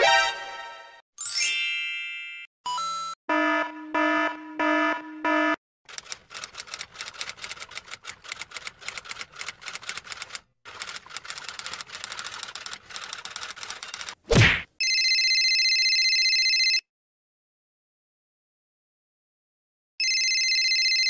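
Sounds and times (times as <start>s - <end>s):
electronic alarm beeping: 2.7s - 5.6s
typewriter keys clacking: 5.9s - 14.2s.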